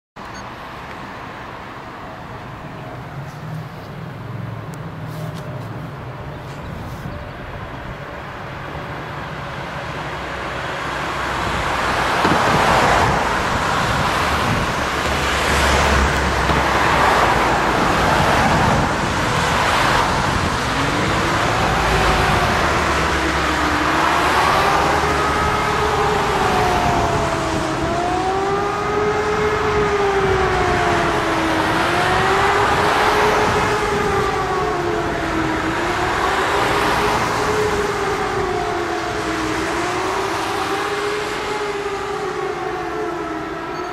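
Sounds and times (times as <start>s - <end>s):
road traffic passing: 0.2s - 43.9s
wailing siren: 9.6s - 43.9s.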